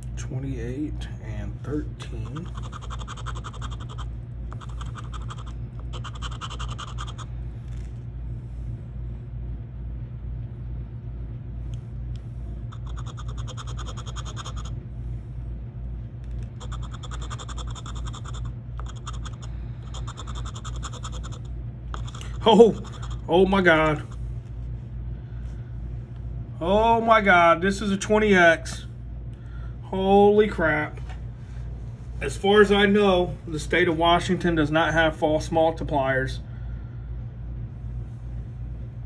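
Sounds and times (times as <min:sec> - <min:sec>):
steady low hum: 0:00.0 - 0:39.0
scratching lottery ticket: 0:02.2 - 0:07.9, 0:12.8 - 0:14.7, 0:16.4 - 0:23.3.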